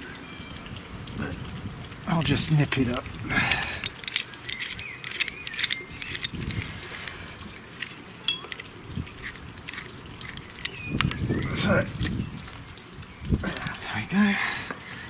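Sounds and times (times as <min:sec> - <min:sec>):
spanner clicking on metal: 0:03.5 - 0:07.2.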